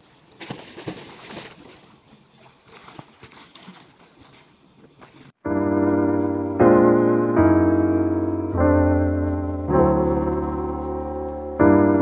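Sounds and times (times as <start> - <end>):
water splashing in a pool: 0.0 - 4.5
electric piano chords: 5.4 - 12.0.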